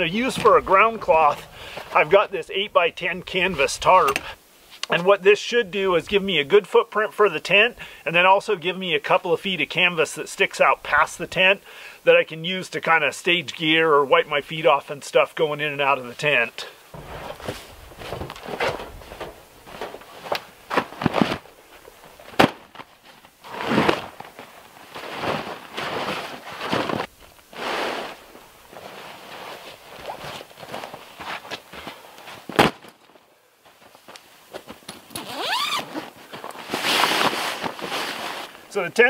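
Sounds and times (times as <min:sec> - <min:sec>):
canvas tarp rustling: 0:00.0 - 0:04.9, 0:16.9 - 0:39.0
footsteps: 0:17.0 - 0:35.2.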